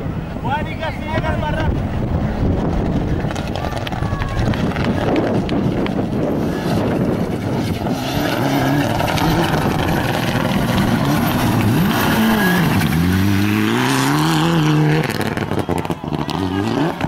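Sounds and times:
rally car engine running hard: 1.2s - 17.0s.

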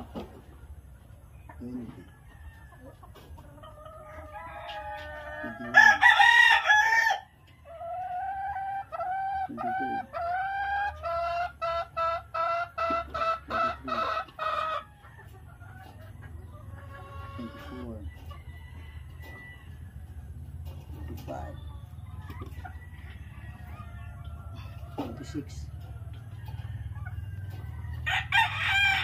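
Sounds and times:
chicken calls: 0.0s - 29.0s
rooster crowing: 4.3s - 7.3s, 26.4s - 29.0s.

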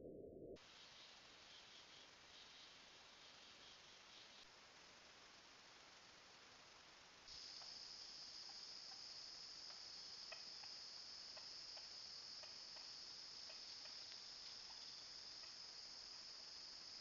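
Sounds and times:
high-pitched insect chorus: 0.7s - 17.0s
soft ticks: 13.5s - 14.8s.

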